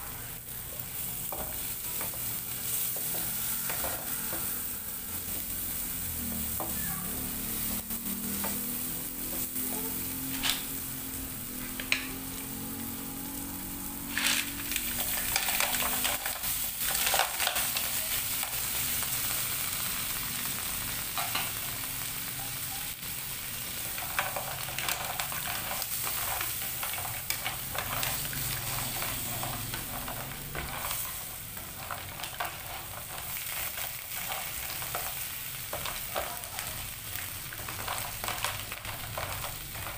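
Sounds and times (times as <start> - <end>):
food sizzling in a wok: 0.0 - 39.9
wooden spatula scraping: 1.2 - 10.8, 23.8 - 39.9.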